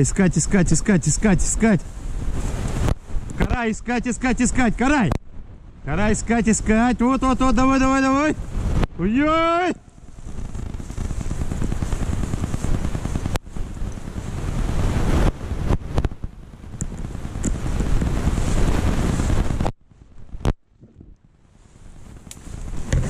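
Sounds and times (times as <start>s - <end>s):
microphone handling noise: 0.0s - 5.8s, 8.4s - 9.0s, 9.8s - 23.0s
wind rumble on microphone: 0.0s - 23.0s.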